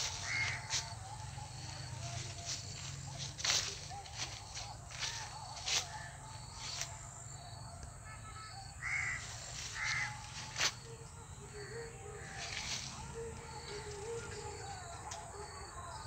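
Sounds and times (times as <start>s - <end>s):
crow cawing: 0.1s - 1.0s, 8.8s - 10.3s.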